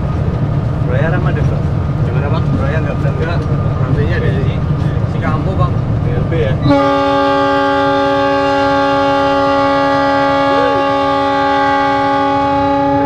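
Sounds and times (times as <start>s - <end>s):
locomotive air horn chord: 6.6s - 13.0s.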